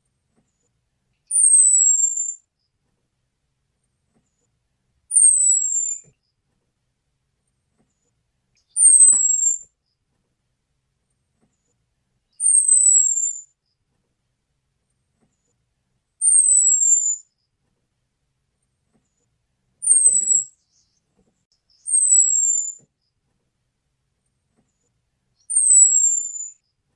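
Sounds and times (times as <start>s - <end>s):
thin descending bird whistle: 1.3s - 2.4s, 5.1s - 6.1s, 8.6s - 9.6s, 12.3s - 13.5s, 16.2s - 17.2s, 19.8s - 21.0s, 21.7s - 22.8s, 25.4s - 26.6s.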